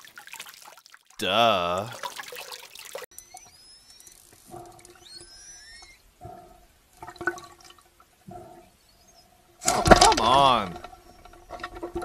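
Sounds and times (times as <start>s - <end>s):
killer whale whistles underwater: 5.0s - 6.0s.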